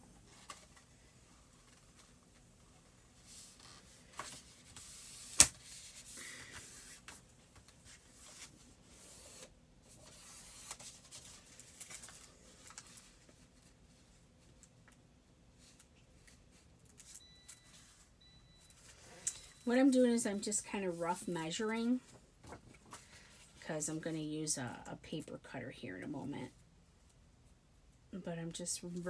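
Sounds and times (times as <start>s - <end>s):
paper sheets rustling: 3.2s - 14.0s.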